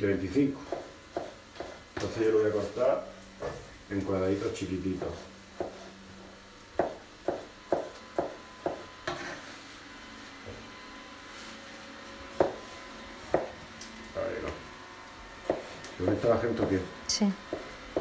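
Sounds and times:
knife chopping on plastic board: 0.6s - 2.1s, 5.0s - 5.9s, 6.8s - 9.3s, 12.3s - 12.6s, 13.2s - 13.6s, 15.4s - 15.8s.

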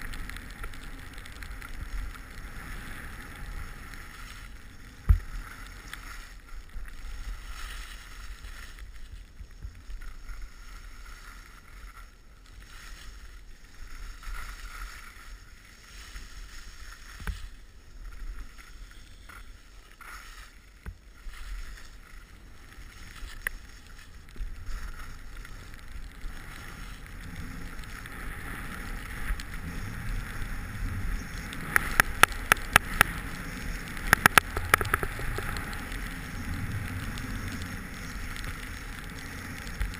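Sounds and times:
skis swishing through snow: 0.0s - 39.9s
sharp clicks: 34.0s - 35.6s.

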